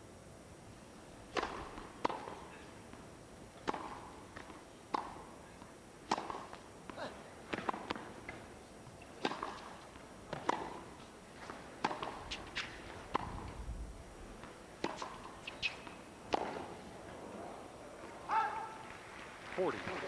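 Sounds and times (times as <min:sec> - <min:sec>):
tennis racket hitting ball: 0:01.3 - 0:02.6, 0:03.6 - 0:05.4, 0:06.0 - 0:08.4, 0:09.0 - 0:13.6, 0:14.4 - 0:16.8
tennis ball bouncing: 0:01.3 - 0:13.6, 0:14.4 - 0:16.9.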